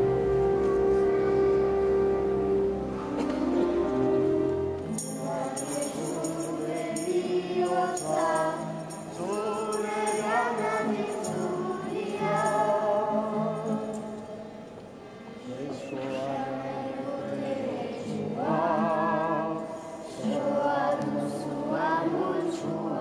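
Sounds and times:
held accompaniment chord: 0.0 - 14.0
children singing a hymn: 0.0 - 23.0
light percussive jingling: 4.9 - 14.3.

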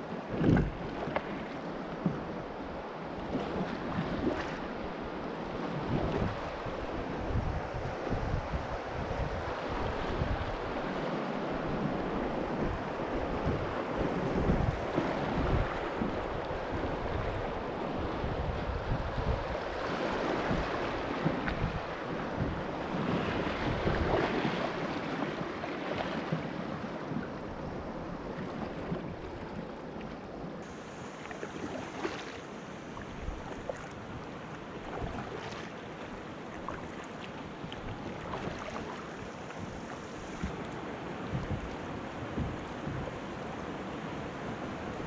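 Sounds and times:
wind buffeting microphone: 0.3 - 1.1, 5.6 - 25.5, 37.7 - 45.0
river water rushing: 6.3 - 42.4.

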